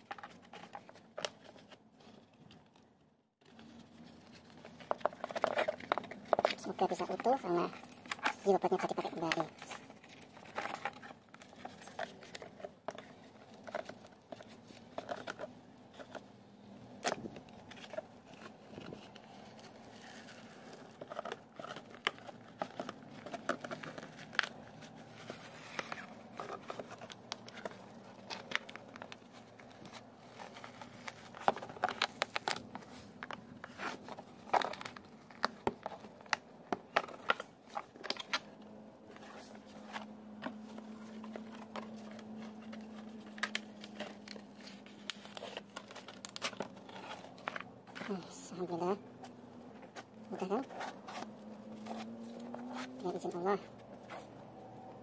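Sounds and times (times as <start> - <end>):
fiberglass crackling and tearing: 41.3 - 48.0.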